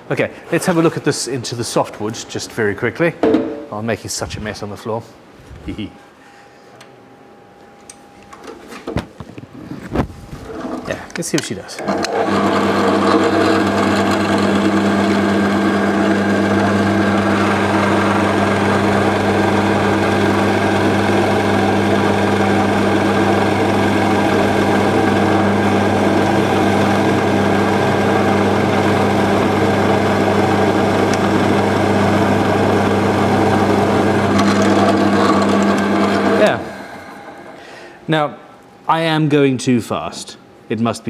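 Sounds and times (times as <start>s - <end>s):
drill bit cutting wood: 11.8s - 37.6s
drill motor hum: 11.8s - 38.1s.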